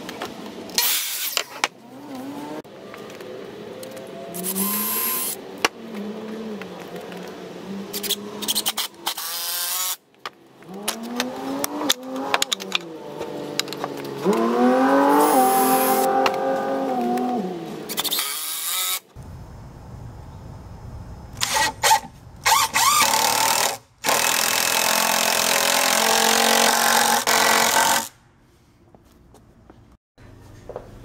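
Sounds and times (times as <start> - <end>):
cordless drill driving screws: 4.4 - 5.4, 15.1 - 16.1, 17.9 - 19.1, 21.4 - 28.2.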